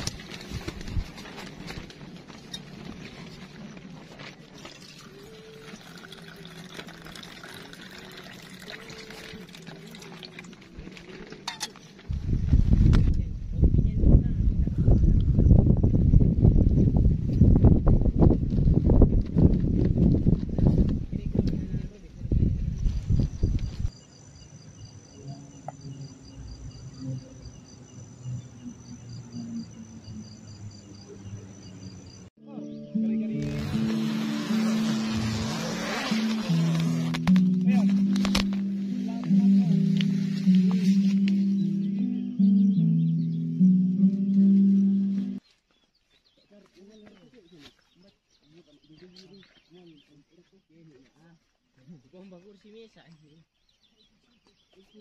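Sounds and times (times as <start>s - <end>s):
handling rustle: 0.0s - 4.9s
water pouring into mug: 4.7s - 10.4s
crickets chirping: 21.6s - 32.3s.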